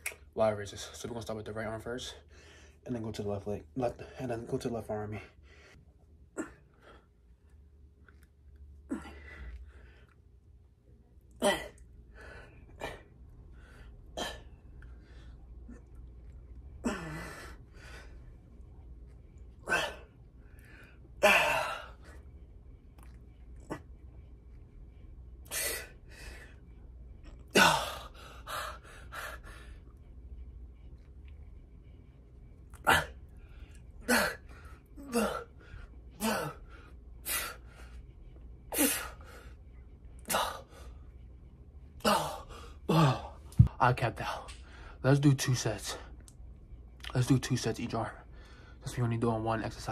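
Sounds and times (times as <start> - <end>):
man exhaling and grunting: 16.8 - 17.5, 19.6 - 20.1, 21.2 - 22.0, 32.8 - 33.2, 35.0 - 35.5, 42.0 - 43.4.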